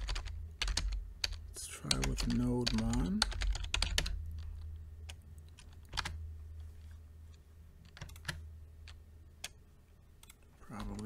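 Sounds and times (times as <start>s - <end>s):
keyboard keystrokes: 0.0s - 6.2s, 7.8s - 9.6s
steady low hum: 0.0s - 11.0s.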